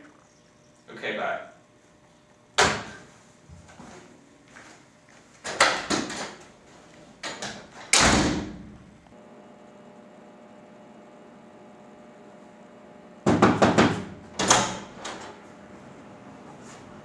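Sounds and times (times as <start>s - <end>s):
faint steady hum: 0.0s - 17.0s
wooden door slamming: 7.9s - 8.8s
sharp knocks: 13.2s - 14.7s.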